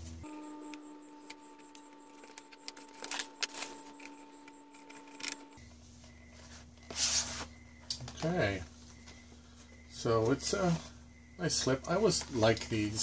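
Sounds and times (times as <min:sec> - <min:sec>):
plastic wrap crinkling: 0:01.6 - 0:05.6.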